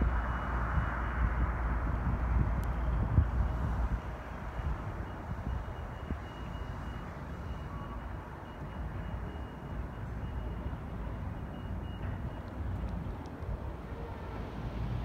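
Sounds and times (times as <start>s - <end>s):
train rumbling on track: 9.6s - 15.0s.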